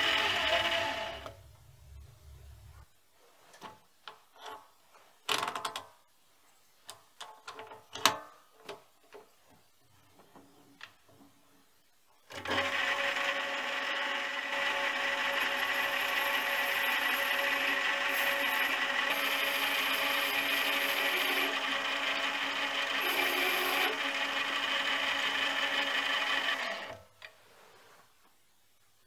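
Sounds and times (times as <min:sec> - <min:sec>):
lathe whining: 0:00.0 - 0:01.4, 0:12.4 - 0:27.0.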